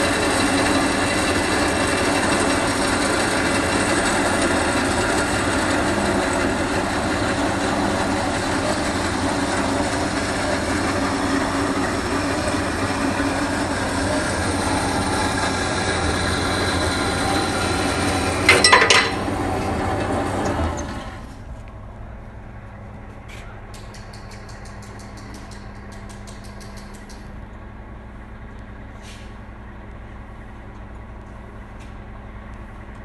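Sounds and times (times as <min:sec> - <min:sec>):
band saw cutting steel tubing: 0:00.0 - 0:21.3.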